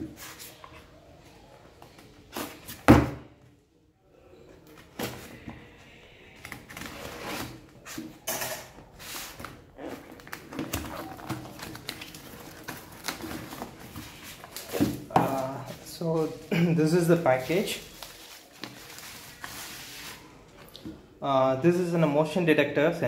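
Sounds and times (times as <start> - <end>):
cardboard and tape scraping: 6.6 - 8.0.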